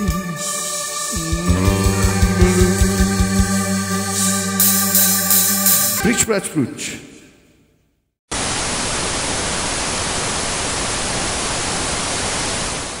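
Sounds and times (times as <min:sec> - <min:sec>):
band music: 0:01.2 - 0:06.3.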